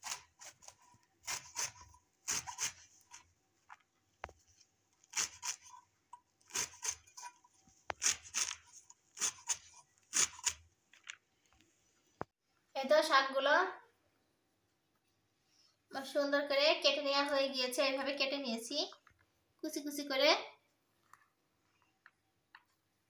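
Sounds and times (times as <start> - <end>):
blade slicing leaves: 5.1 - 5.8.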